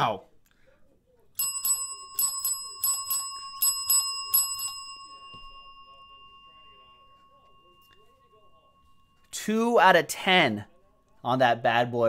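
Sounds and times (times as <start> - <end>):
small metal bell ringing: 1.4 - 9.5.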